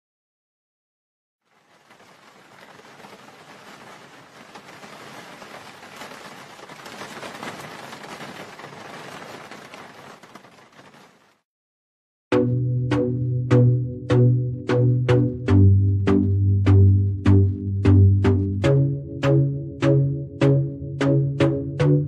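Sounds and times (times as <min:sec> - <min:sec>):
steady rain falling: 0:01.4 - 0:11.4.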